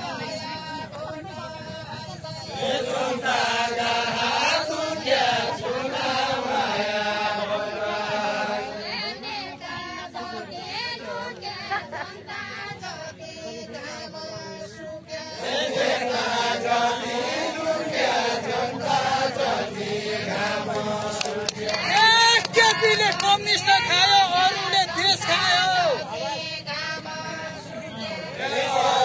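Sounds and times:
group chanting folk song: 0.0 - 29.0.

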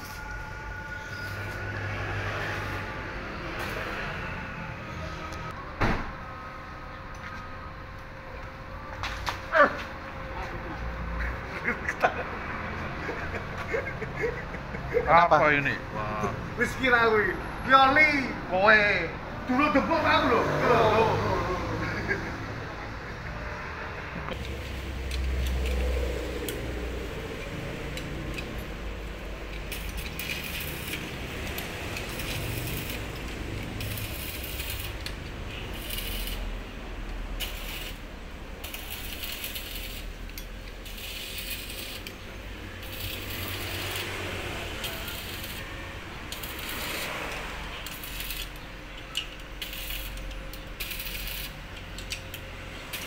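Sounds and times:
welding arc crackling: 24.3 - 53.0.

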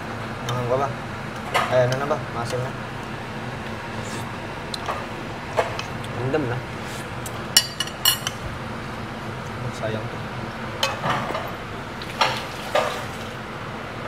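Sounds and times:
utensils clinking against dishes: 7.6 - 8.4.

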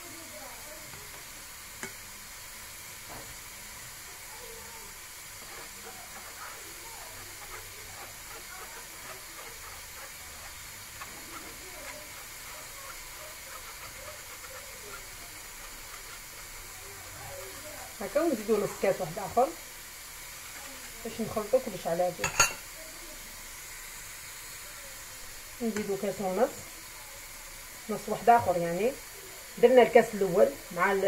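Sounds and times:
steady hiss: 0.0 - 31.0
spoon scratching a wire sieve: 5.3 - 19.5, 20.3 - 22.6.

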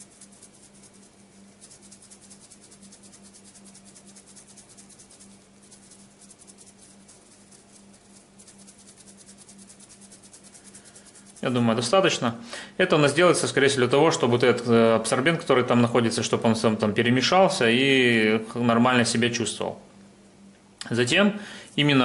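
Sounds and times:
filter granules rattling: 0.0 - 11.7.

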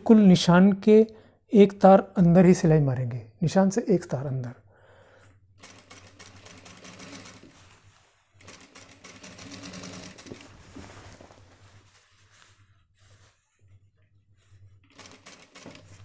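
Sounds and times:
industrial sewing machine stitching: 5.6 - 7.5, 8.4 - 10.4, 14.9 - 16.0.

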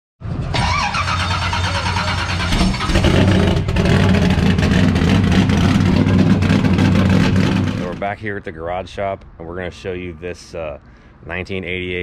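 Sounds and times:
stock car engine running loud: 0.3 - 8.0.

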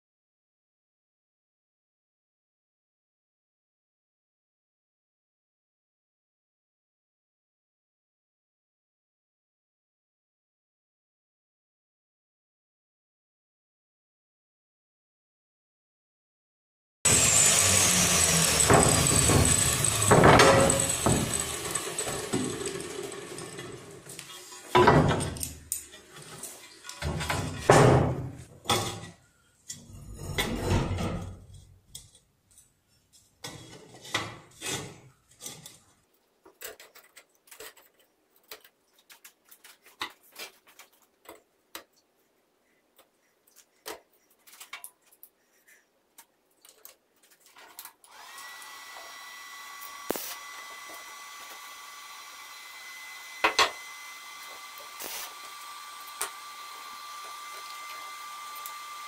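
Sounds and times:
steel plate scraping on workbench: 28.7 - 31.7, 33.5 - 35.8.

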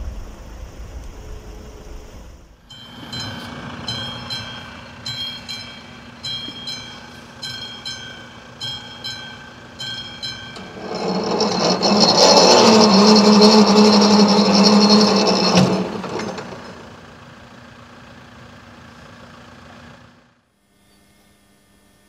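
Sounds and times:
level crossing bell ringing: 2.7 - 11.6
barrier motor whirring: 2.8 - 17.1.

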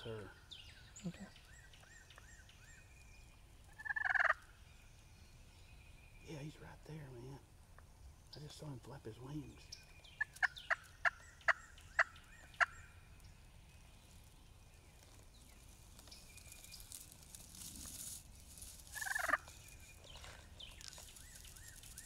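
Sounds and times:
turkey call notes: 3.7 - 4.5, 9.5 - 13.0, 18.9 - 22.0
turkey gobble: 3.7 - 4.5, 10.2 - 13.0, 19.0 - 19.6.

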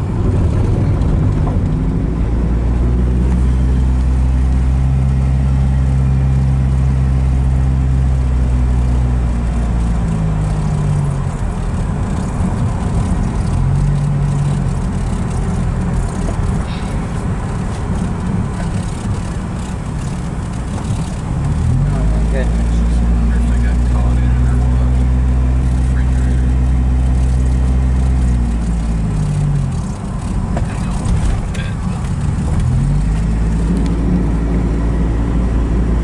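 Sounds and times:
car engine hum: 0.0 - 36.0
tyre road noise: 0.0 - 36.0.

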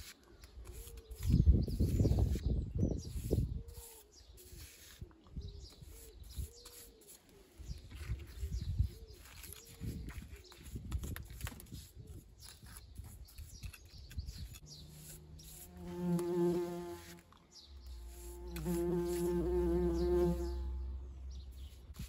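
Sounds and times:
bumblebee buzzing: 14.7 - 17.2, 18.0 - 20.9.

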